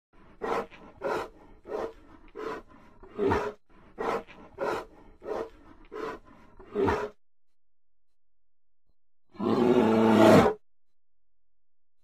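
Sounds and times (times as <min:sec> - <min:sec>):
bear growling: 0:00.3 - 0:07.2.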